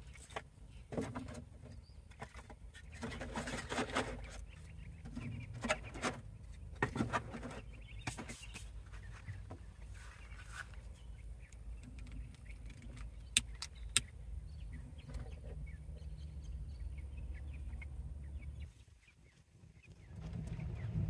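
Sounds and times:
low steady rumble: 8.8 - 21.0.

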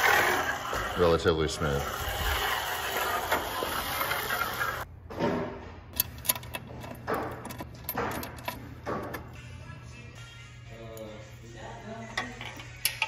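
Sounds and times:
bearing block sliding along track: 1.8 - 4.8.

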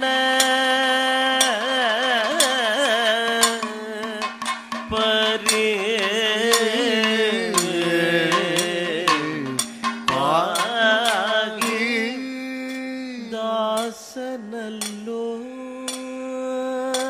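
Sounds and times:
man singing with ornaments: 0.0 - 17.0
sharp percussion strokes: 1.3 - 14.2.

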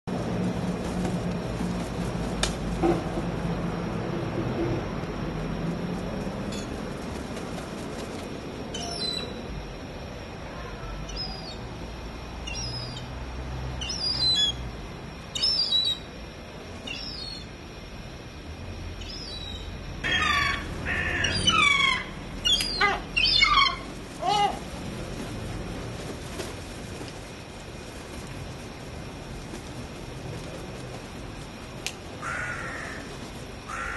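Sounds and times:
gulls calling: 19.0 - 24.8.

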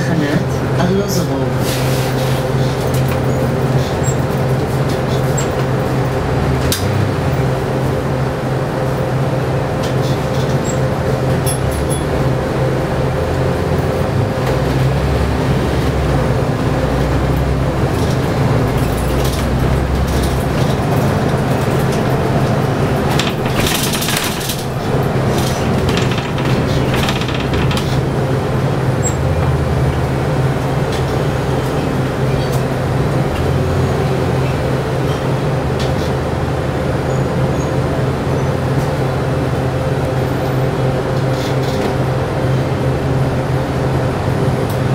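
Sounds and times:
bus engine humming: 0.0 - 44.9
rattles and clicks: 17.8 - 29.2.

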